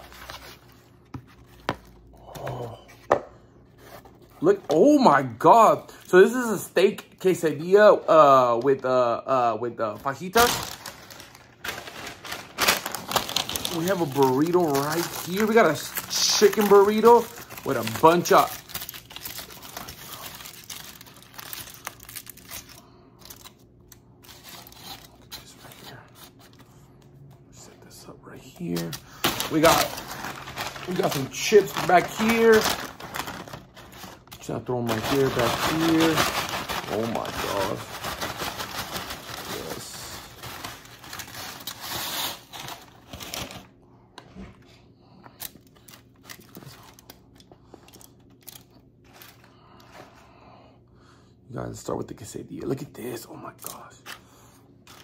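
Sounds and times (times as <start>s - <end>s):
aluminium foil crinkling: 10.0s - 26.6s, 28.7s - 43.7s, 45.3s - 50.0s.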